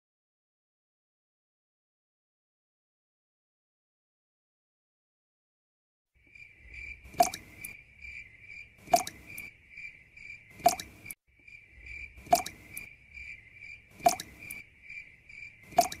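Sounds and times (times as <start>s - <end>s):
crickets chirping: 6.2s - 16.0s
water drops plopping into pool: 7.1s - 7.8s, 8.8s - 9.5s, 10.6s - 11.0s, 12.2s - 12.9s, 14.0s - 14.6s, 15.7s - 16.0s.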